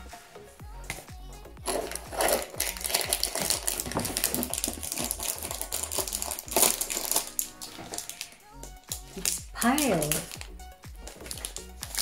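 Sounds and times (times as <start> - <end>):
cardboard crackling and rustling: 1.7 - 8.4, 9.1 - 12.0
cardboard tearing: 1.7 - 8.4.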